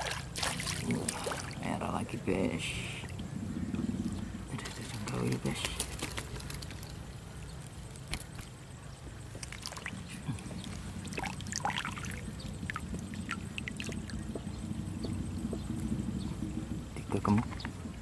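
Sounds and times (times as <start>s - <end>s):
water drips and splashes: 0.0s - 2.0s, 9.3s - 14.5s
steady low rumble: 0.0s - 18.0s.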